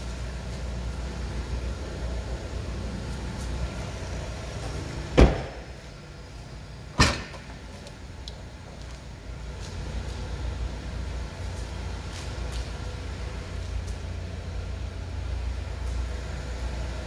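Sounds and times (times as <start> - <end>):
car door shutting: 5.1 - 5.7, 7.0 - 7.5
trunk latch clunk: 5.2 - 5.6, 7.0 - 7.5.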